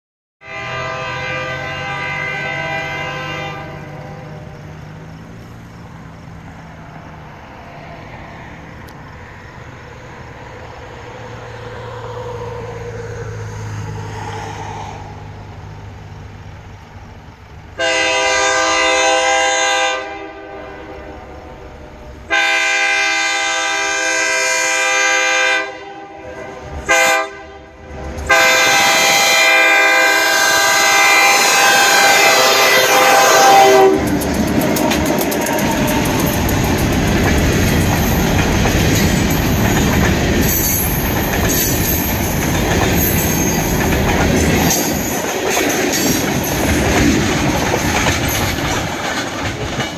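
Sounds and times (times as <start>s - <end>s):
train air horn blasts: 0.4s - 4.6s, 17.8s - 36.6s
diesel locomotive rumbling: 0.4s - 49.9s
train wheels clattering on rails: 30.8s - 49.9s.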